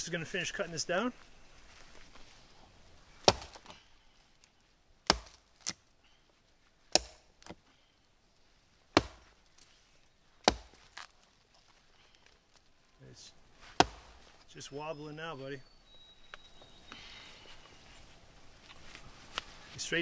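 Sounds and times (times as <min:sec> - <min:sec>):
axe chopping tree trunk: 0:03.2 - 0:03.8, 0:05.0 - 0:05.8, 0:06.9 - 0:07.6, 0:08.9 - 0:09.4, 0:10.4 - 0:11.2, 0:13.7 - 0:14.3.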